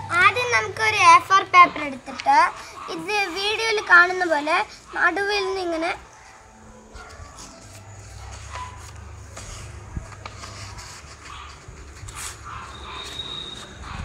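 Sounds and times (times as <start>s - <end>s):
paper rustling and sliding: 7.0s - 14.0s.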